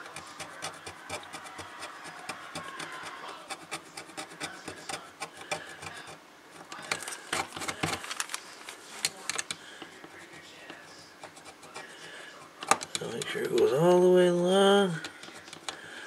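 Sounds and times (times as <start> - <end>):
metal tool scraping circuit board: 0.0 - 8.0, 10.2 - 12.1.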